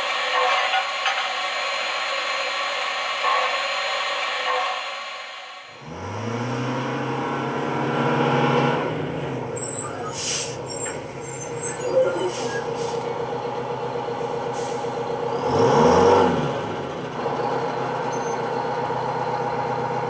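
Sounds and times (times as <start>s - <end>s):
bus engine running: 0.0s - 20.0s
brief high squeal: 9.6s - 13.0s, 18.1s - 18.5s
air brakes hissing: 9.6s - 13.2s, 14.1s - 15.1s.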